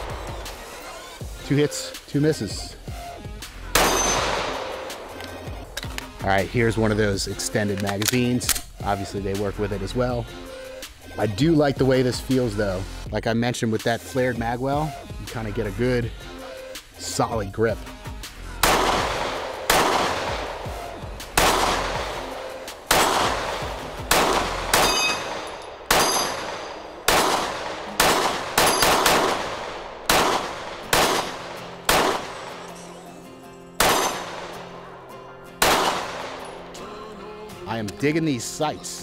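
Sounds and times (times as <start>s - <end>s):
pistol shots echoing: 3.7s - 6.0s, 18.6s - 33.2s, 33.8s - 35.0s, 35.6s - 36.8s
bullets ringing steel targets: 3.8s - 6.0s, 21.4s - 34.7s, 35.6s - 36.8s.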